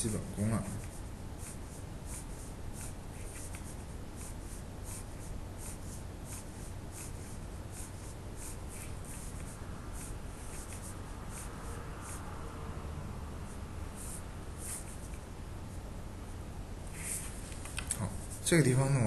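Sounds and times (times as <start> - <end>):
steady low hum: 0.0 - 19.0
pen nib scratching paper: 0.7 - 12.2, 14.0 - 15.2.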